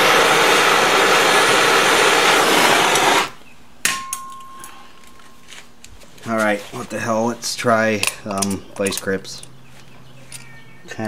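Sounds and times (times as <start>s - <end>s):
gas torch hissing: 0.0s - 3.4s
sharp ringing clink: 3.9s - 5.4s, 10.3s - 10.8s.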